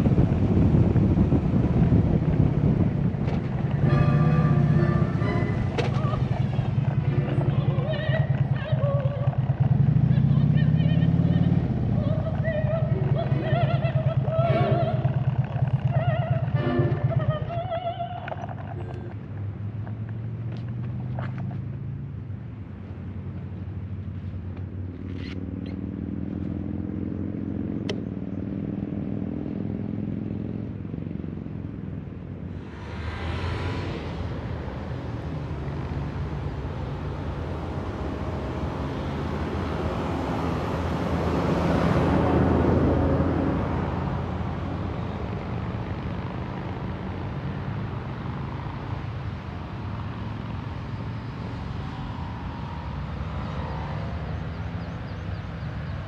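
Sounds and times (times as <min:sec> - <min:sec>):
motorcycle engine running: 0:00.0 - 0:18.9
wind and road noise: 0:00.0 - 0:56.0.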